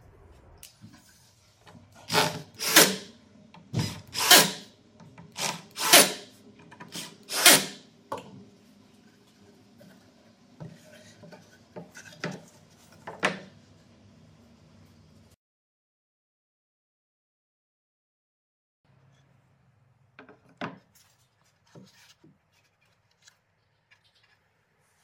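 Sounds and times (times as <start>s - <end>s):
cordless drill driving screws: 2.0s - 3.1s, 3.8s - 4.6s, 5.3s - 6.3s, 6.9s - 7.8s.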